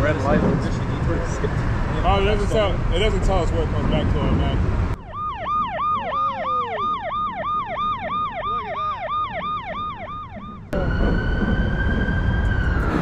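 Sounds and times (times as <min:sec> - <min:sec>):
police siren yelp: 0:05.0 - 0:13.0.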